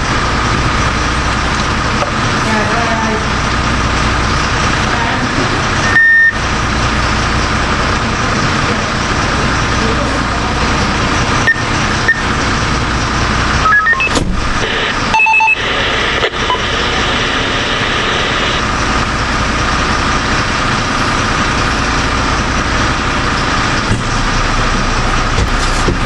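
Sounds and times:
diesel engine idling: 0.0 - 26.0
short electronic beeps: 5.8 - 6.4, 11.4 - 12.3, 13.6 - 18.6.

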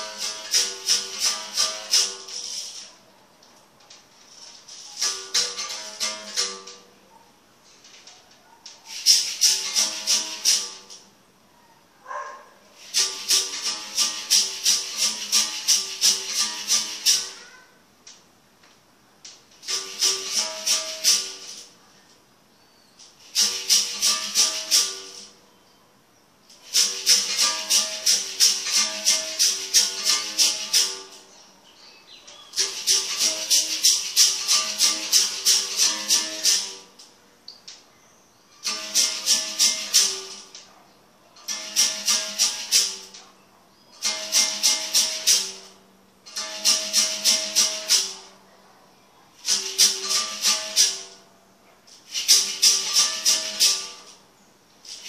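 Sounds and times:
shaker rattle: 0.0 - 3.0, 3.9 - 6.8, 7.7 - 11.1, 12.8 - 17.5, 19.4 - 21.9, 23.0 - 25.4, 26.5 - 31.4, 32.1 - 37.1, 38.6 - 40.8, 41.4 - 43.3, 44.0 - 48.4, 49.4 - 51.2, 51.9 - 55.0
berimbau strokes: 0.0 - 3.1, 7.6 - 11.1, 19.6 - 21.8, 23.0 - 25.4, 26.5 - 31.5, 32.2 - 36.9, 38.6 - 40.8, 51.9 - 54.2, 54.8 - 55.0
basket rattle shaking: 7.8 - 11.0, 26.6 - 31.2, 32.5 - 36.8, 38.6 - 40.6, 51.9 - 54.2.

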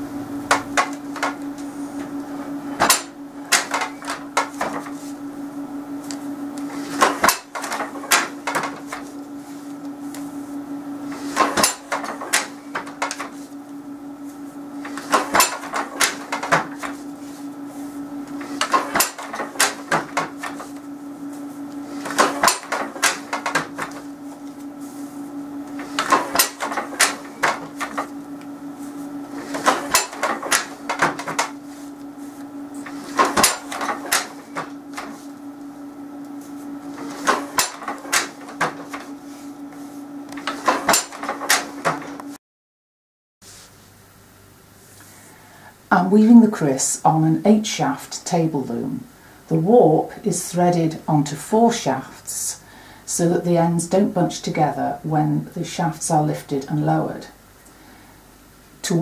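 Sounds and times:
steady low hum: 0.0 - 42.4
wooden loom knocking and clattering: 7.0 - 9.0, 15.0 - 16.7, 18.6 - 20.6, 22.0 - 24.0, 25.9 - 28.0, 29.5 - 31.5, 33.1 - 35.1, 37.2 - 39.0, 40.4 - 42.2.

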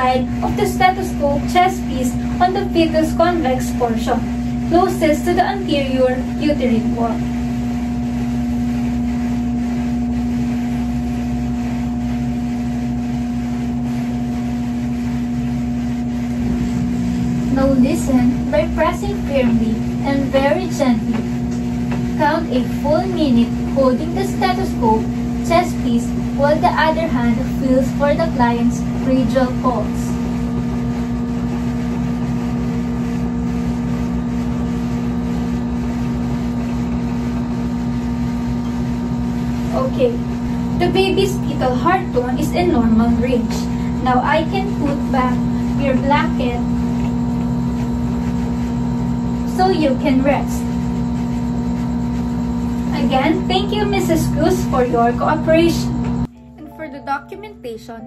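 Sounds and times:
steady background hum: 0.0 - 58.0
low rumble: 15.2 - 21.9, 40.0 - 48.2.

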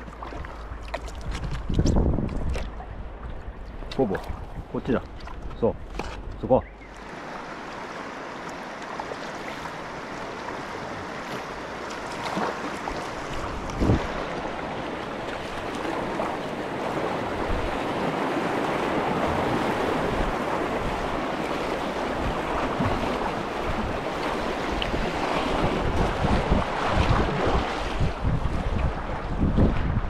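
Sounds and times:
wind buffeting microphone: 0.0 - 7.6, 12.8 - 30.0
white water rushing: 6.5 - 29.7.

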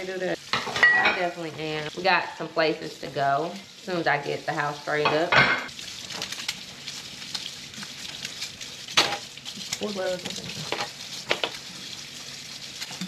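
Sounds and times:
faucet running: 0.0 - 13.0
dishes clinking: 0.5 - 1.4, 5.0 - 5.7.

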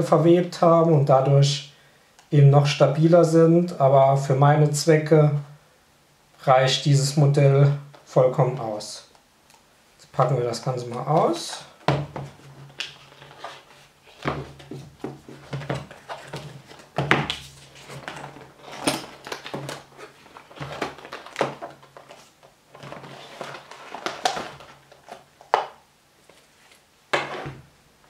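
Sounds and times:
cardboard box being opened: 12.2 - 25.2.

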